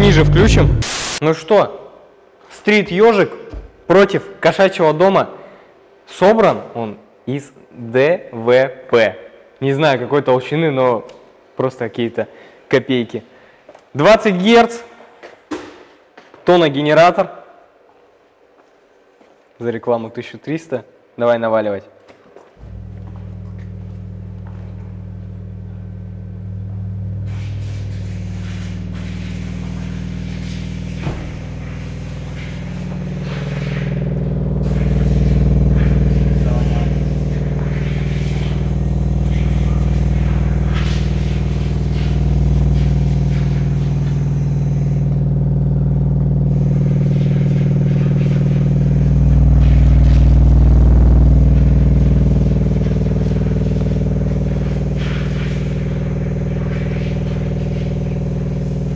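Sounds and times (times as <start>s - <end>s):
subwoofer deep drone: 0.0s - 1.2s, 22.6s - 58.9s.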